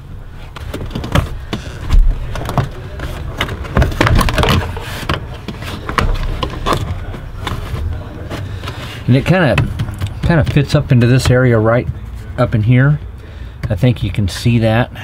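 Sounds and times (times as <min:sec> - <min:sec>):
heavy thump: 0:00.6 - 0:03.0
plastic trim panel clicking and creaking: 0:00.6 - 0:11.4.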